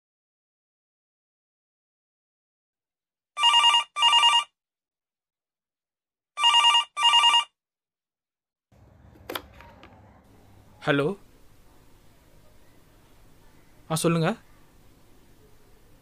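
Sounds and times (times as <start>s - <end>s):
telephone double ring: 3.4s - 4.5s, 6.4s - 7.5s
handset lifted click: 9.2s - 10.0s.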